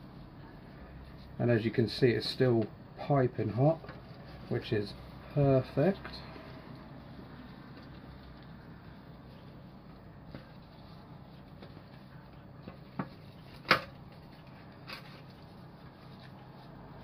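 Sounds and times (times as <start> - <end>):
handling meat in metal tray: 3.4 - 17.0.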